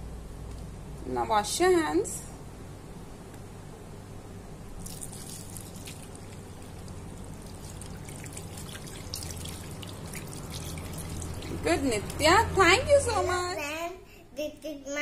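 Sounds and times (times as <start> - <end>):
tap water running into washbasin: 4.8 - 12.8.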